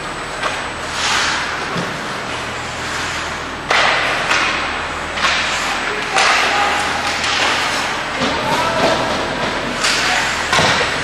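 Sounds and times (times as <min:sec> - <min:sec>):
skates scraping on ice: 0:00.9 - 0:03.1, 0:05.2 - 0:10.9.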